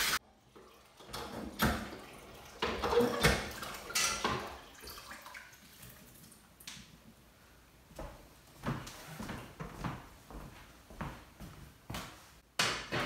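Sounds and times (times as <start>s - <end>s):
water splashing in sink: 0.0s - 7.0s
dishes clinking: 2.6s - 4.6s.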